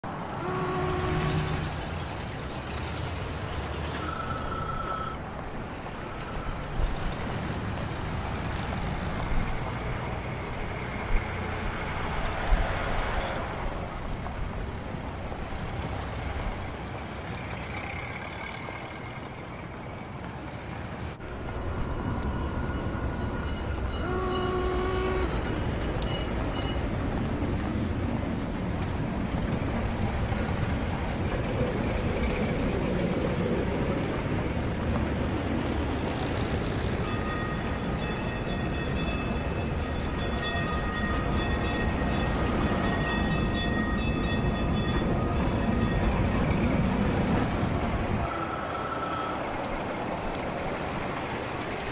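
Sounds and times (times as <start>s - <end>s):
rumble of cars and streetcars: 0.0s - 51.9s
car horn: 0.4s - 1.7s, 23.9s - 25.6s.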